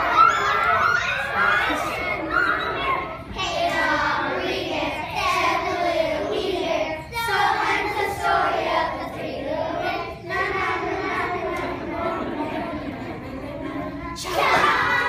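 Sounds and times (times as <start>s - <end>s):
children singing together: 0.0s - 15.0s.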